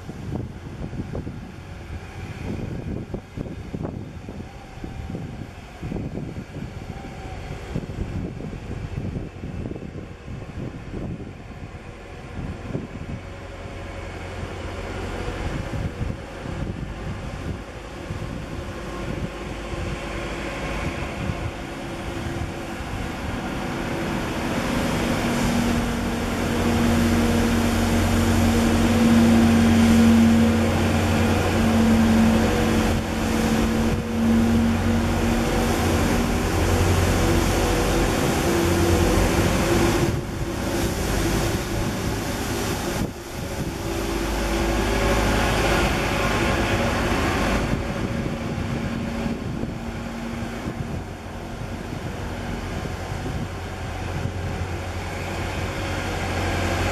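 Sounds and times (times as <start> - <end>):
wind noise on microphone: 0.0 - 56.9
vehicle engine hum: 12.3 - 56.9.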